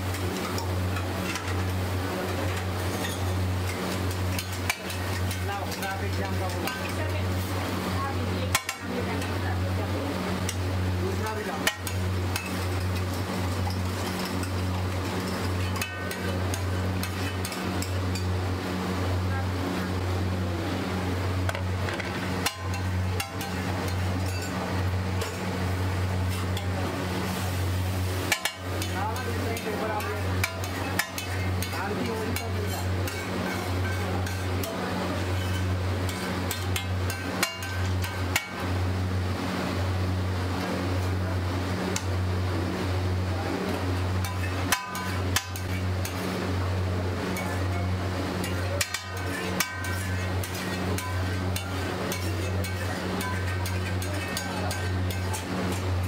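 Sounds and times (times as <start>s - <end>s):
egg sizzling on griddle: 0.0s - 9.3s, 10.3s - 18.6s, 21.4s - 39.4s, 43.7s - 56.0s
low machine hum: 0.0s - 56.0s
metal spatula clinking on plate: 28.3s - 38.6s, 44.2s - 46.2s, 47.3s - 56.0s.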